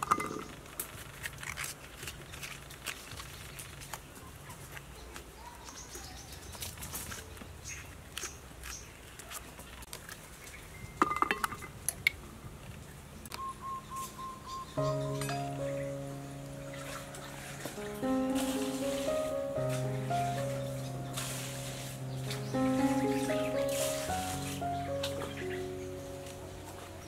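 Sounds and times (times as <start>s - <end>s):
birds chirping: 13.3s - 27.0s.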